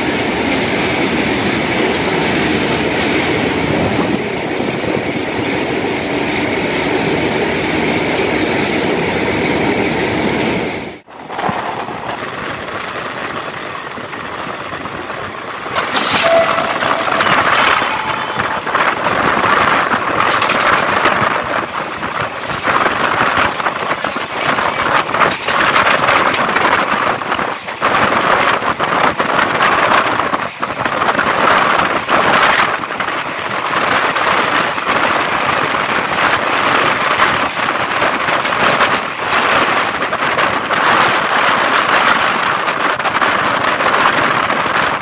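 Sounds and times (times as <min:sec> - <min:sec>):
train wheels clattering on rails: 0:11.0 - 0:45.0.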